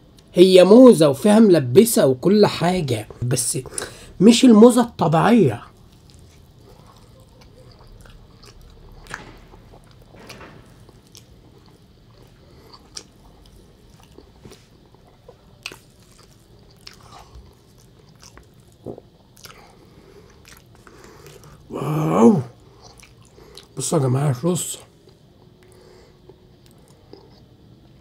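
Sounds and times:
person chewing meat: 5.5s - 21.7s, 22.5s - 23.8s, 25.0s - 28.0s.

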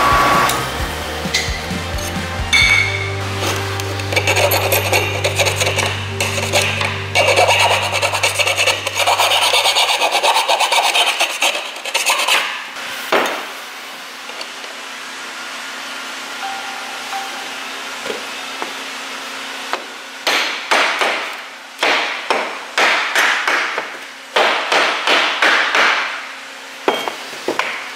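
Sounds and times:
file rasping on metal pipe: 4.0s - 12.5s.

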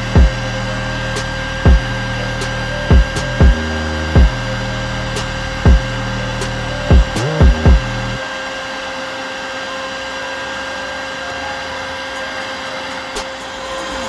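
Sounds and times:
vacuum hissing with motor whine: 0.0s - 14.0s
loud thumps: 6.9s - 8.0s.

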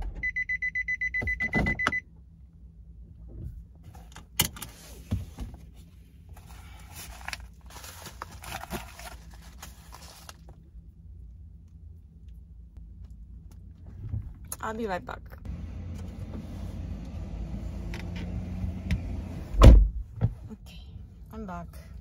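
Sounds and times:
car warning chime beeping: 0.1s - 2.0s
padded envelope rustling: 6.4s - 10.6s.

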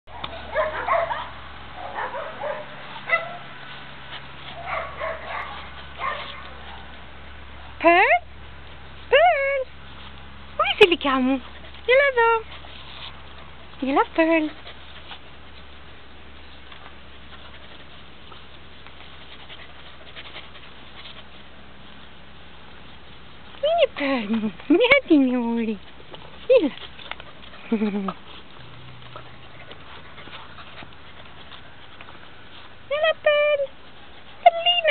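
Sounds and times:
small dogs yipping and barking: 0.1s - 3.7s, 4.4s - 7.0s.

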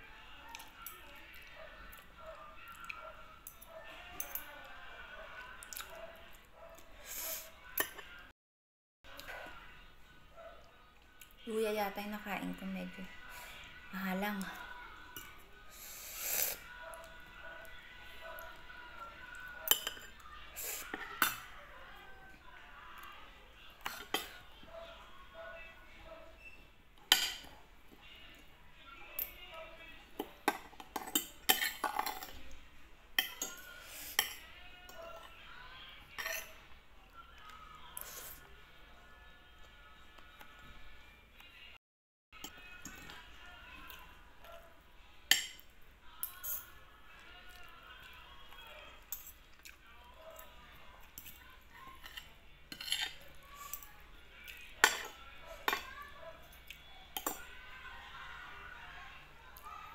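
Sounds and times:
cutlery clinking on a plate: 4.2s - 4.5s, 19.7s - 20.2s, 20.9s - 21.5s, 27.1s - 27.6s, 30.2s - 32.4s, 33.2s - 35.0s, 36.1s - 36.6s, 45.3s - 46.8s, 49.1s - 49.4s, 52.0s - 53.9s, 54.8s - 55.9s, 57.2s - 57.5s.

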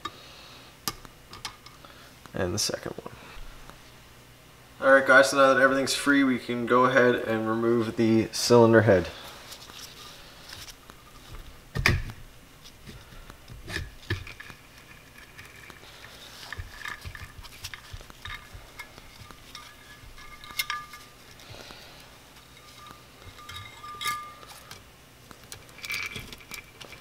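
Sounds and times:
metal knocks and clinks: 18.2s - 21.2s, 22.5s - 24.8s.

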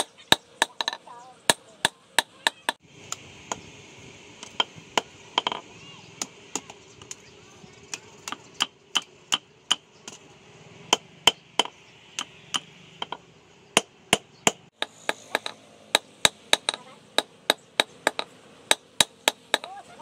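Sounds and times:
hammer beating blade on anvil: 14.8s - 19.8s.

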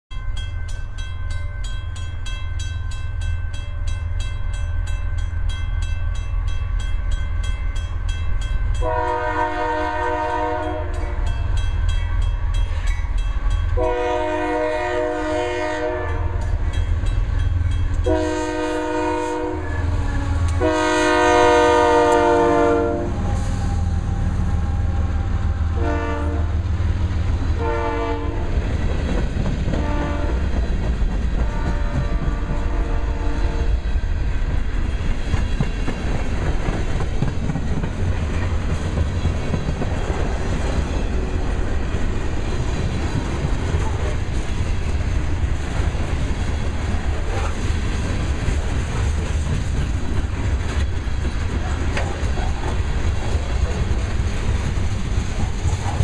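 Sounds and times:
train low rumble: 0.1s - 56.0s
locomotive air horn blasts: 8.8s - 11.3s, 13.8s - 16.6s, 18.0s - 24.1s, 25.7s - 26.6s, 27.6s - 28.5s, 29.8s - 30.4s, 31.4s - 33.8s
freight cars rolling on rails: 28.5s - 56.0s.

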